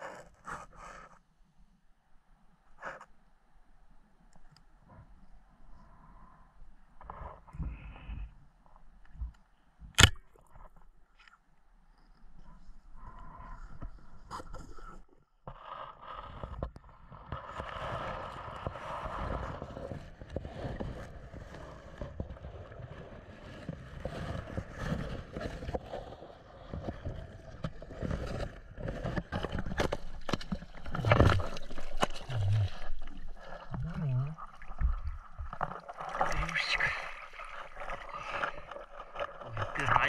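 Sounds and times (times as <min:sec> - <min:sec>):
underwater scraping and gurgling: 0:12.4 - 0:40.0
splashing water: 0:30.2 - 0:40.0.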